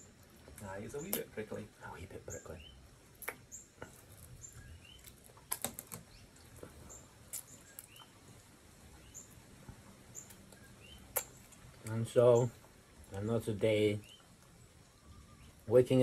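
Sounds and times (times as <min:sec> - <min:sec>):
small birds chirping: 0:00.0 - 0:16.0
clicks and smacks of eating: 0:00.2 - 0:01.3, 0:03.2 - 0:04.4, 0:05.0 - 0:08.5, 0:10.2 - 0:12.0.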